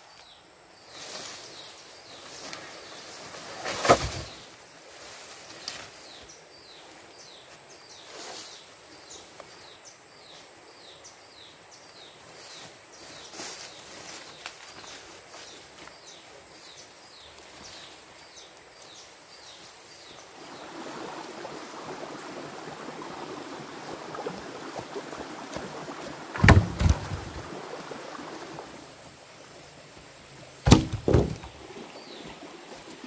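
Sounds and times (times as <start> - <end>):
wooden poles thudding on ground: 3.5 - 4.4, 26.3 - 27.5, 30.6 - 31.6.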